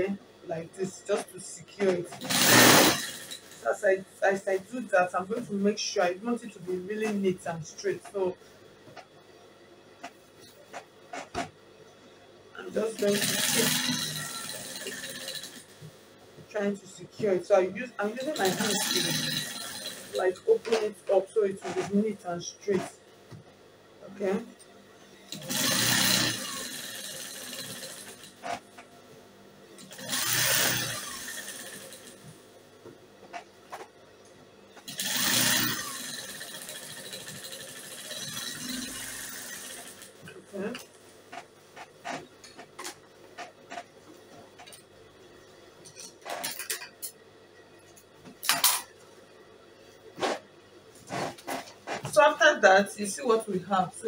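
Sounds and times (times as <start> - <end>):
sewing machine stitching: 2.0 - 3.7, 12.6 - 15.8, 18.0 - 20.9, 25.3 - 28.7, 29.8 - 32.2, 34.8 - 40.3.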